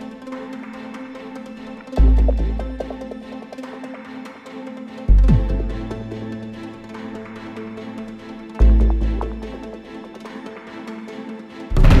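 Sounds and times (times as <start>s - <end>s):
electronic background music: 0.0s - 12.0s
deep bass hit: 11.7s - 12.0s.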